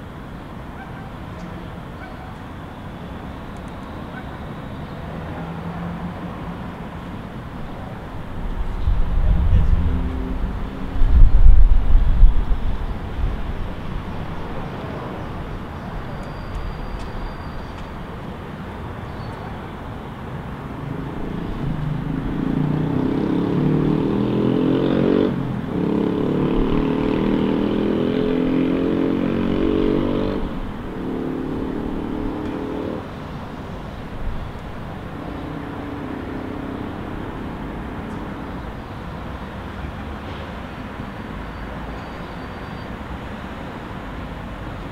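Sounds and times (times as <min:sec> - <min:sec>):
city traffic hum: 0:00.0 - 0:44.9
vehicle engine revving: 0:20.9 - 0:33.2.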